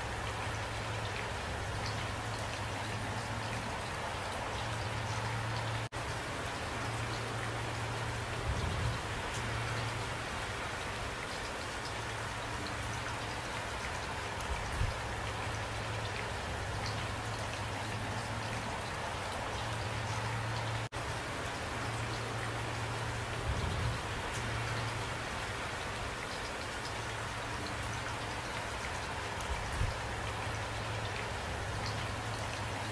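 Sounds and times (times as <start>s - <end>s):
steady rain falling: 0.0s - 32.9s.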